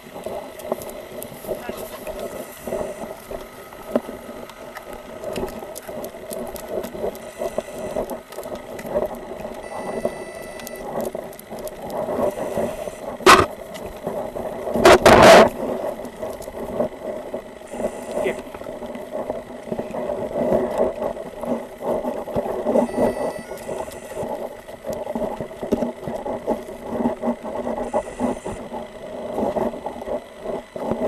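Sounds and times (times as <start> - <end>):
footsteps walking: 0.2 - 15.0
loud noise bursts: 12.3 - 13.5.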